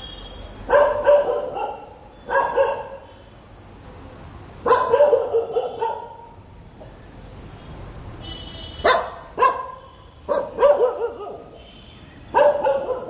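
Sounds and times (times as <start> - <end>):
dog barking: 0.7 - 3.1, 4.6 - 6.4, 8.8 - 11.7, 12.3 - 13.0.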